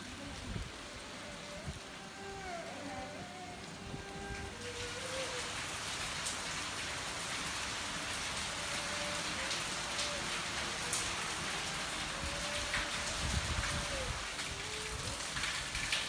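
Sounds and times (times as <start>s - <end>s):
heavy rain pouring: 0.0s - 16.0s.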